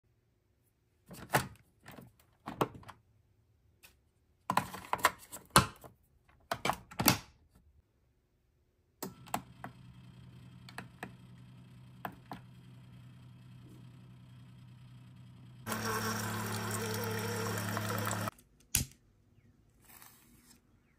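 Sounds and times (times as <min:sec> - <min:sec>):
coffee maker humming: 0:09.1 - 0:18.3
coffee brewing hiss: 0:15.7 - 0:18.3.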